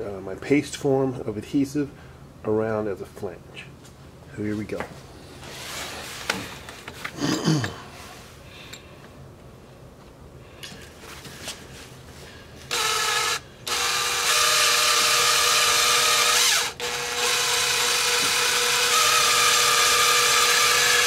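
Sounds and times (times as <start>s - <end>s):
cordless drill motor whining: 12.7s - 21.0s.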